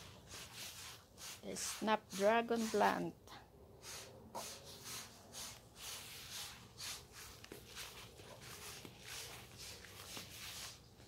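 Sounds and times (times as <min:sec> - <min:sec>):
footsteps on a lawn: 0:06.0 - 0:11.0.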